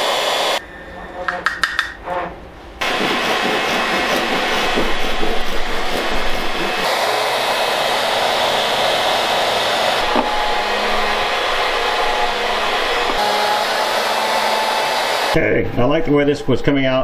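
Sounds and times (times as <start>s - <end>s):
rushing machine noise: 2.8s - 15.4s.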